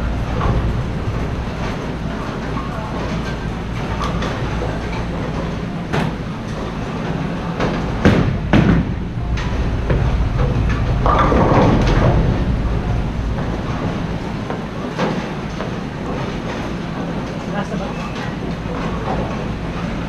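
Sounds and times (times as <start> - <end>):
bowling balls rolling: 0.0 - 20.0
bowling pins clattering: 0.0 - 20.0
sharp knocks: 7.6 - 12.6.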